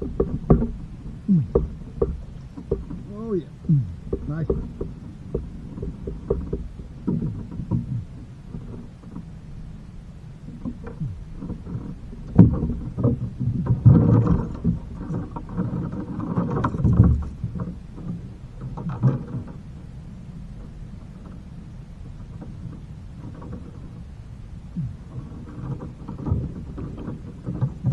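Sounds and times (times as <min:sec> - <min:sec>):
knocks and bumps on boat hull: 0:00.0 - 0:08.8, 0:24.7 - 0:27.9.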